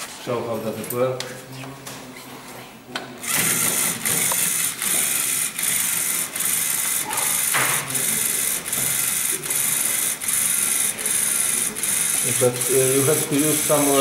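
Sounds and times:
motor and gears whirring: 3.2 - 14.0.

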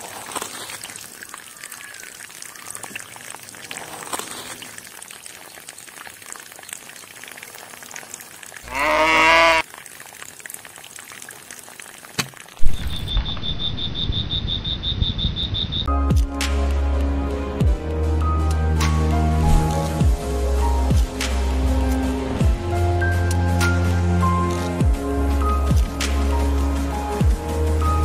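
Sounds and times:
faint trickling water: 0.0 - 13.1
calf bleating: 8.7 - 9.6
background music: 15.9 - 28.0.

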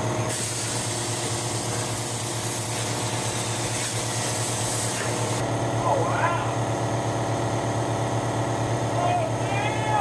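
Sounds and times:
air compressor humming: 0.0 - 10.0
plasma arc hissing: 0.3 - 5.4.

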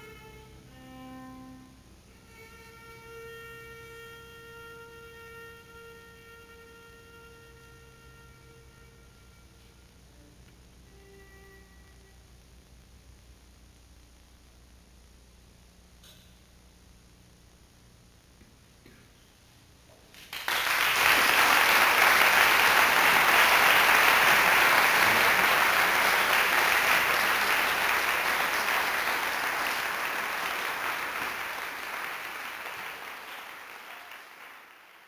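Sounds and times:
audience applauding: 20.1 - 35.0.

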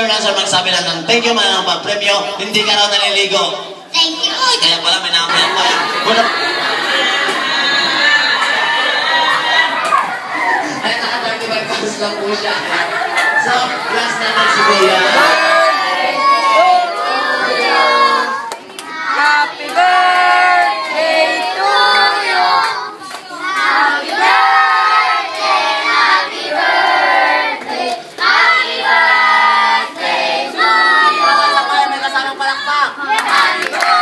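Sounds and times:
people clapping along: 7.0 - 10.1, 18.0 - 24.6, 33.0 - 34.0
group singing together: 12.4 - 32.2, 33.0 - 34.0.

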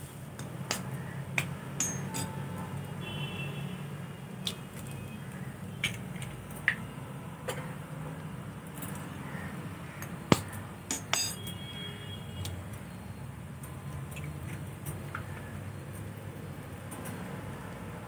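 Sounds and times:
glass ringing: 1.8 - 2.4, 10.9 - 11.6.

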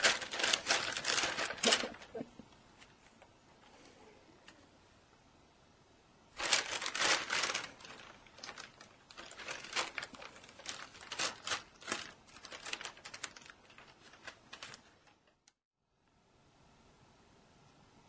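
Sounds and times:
plastic bag crinkling: 0.0 - 2.3, 6.4 - 15.5.

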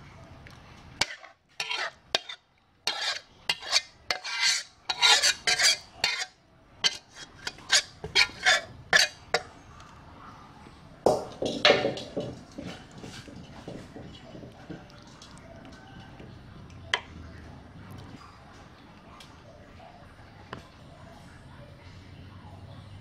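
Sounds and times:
metal spatula scraping a pan: 1.0 - 9.5.

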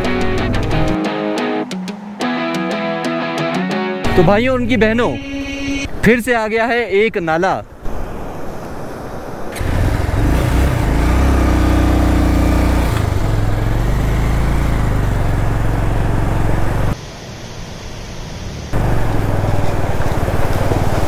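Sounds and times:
motorcycle engine running: 9.6 - 17.0, 18.8 - 21.0.

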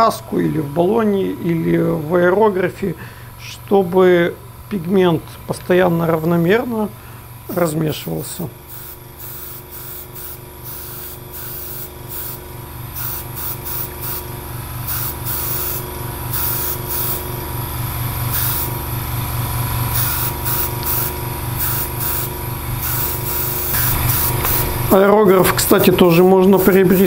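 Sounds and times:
air compressor pulsing: 6.2 - 27.0
airbrush hissing bursts: 8.6 - 17.4, 18.2 - 18.8, 19.8 - 25.0, 25.6 - 27.0.

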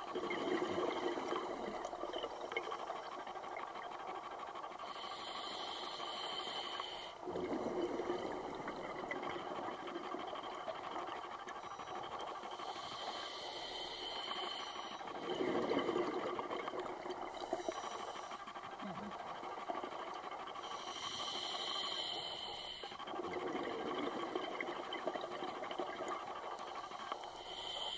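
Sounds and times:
gurgling exhaled bubbles: 0.1 - 2.6, 7.2 - 10.7, 15.1 - 17.3, 23.2 - 26.2
regulator inhalation hiss: 4.8 - 7.2, 20.7 - 23.0.

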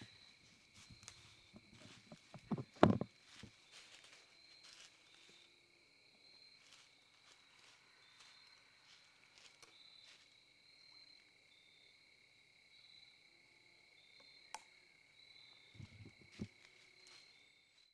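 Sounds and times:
crickets trilling: 0.0 - 17.9
camera handling bumps: 2.3 - 3.1.

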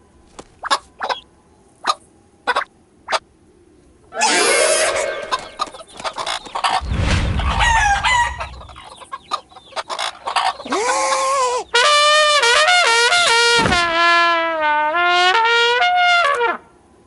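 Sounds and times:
cartoon hens clucking and squawking: 0.6 - 1.2, 1.8 - 3.2, 4.2 - 11.8
toy trumpet blast: 4.2 - 5.8, 11.8 - 16.6
low rumble: 6.8 - 9.0.

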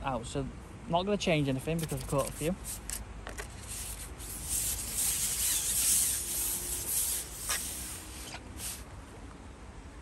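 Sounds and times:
fishing pole sliding hiss: 2.2 - 8.9.

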